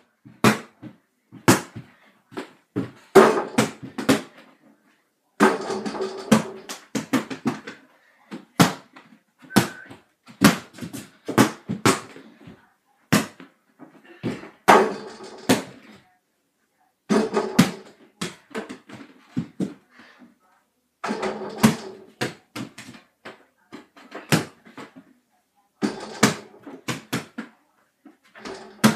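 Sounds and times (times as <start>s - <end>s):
basketball bouncing on floor: 0.3s - 4.4s, 5.4s - 13.5s, 21.2s - 25.0s, 25.8s - 27.5s.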